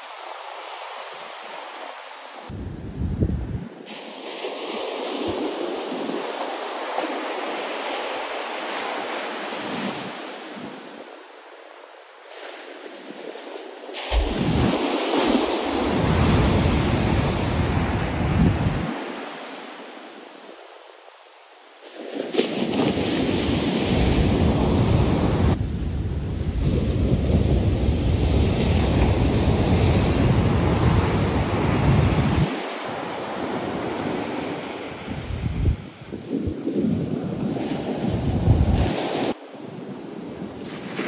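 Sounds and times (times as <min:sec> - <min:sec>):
heavy surf breaking: 0:00.0 - 0:11.4, 0:12.1 - 0:20.2, 0:21.8 - 0:41.0
wind rumbling on microphone: 0:02.4 - 0:07.6, 0:14.1 - 0:19.2, 0:22.6 - 0:41.0.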